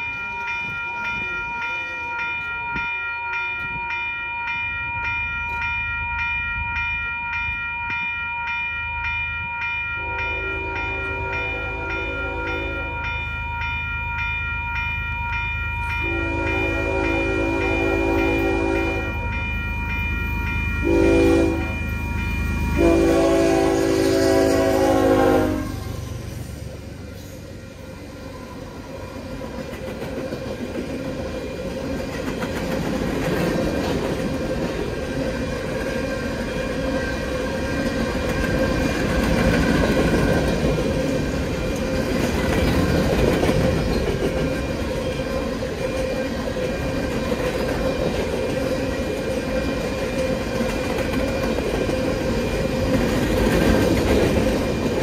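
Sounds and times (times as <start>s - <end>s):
locomotive horn blasts: 10.0s - 12.9s, 16.0s - 19.2s, 20.8s - 21.9s, 22.7s - 26.1s
train wheels clattering and rumbling: 29.0s - 55.0s.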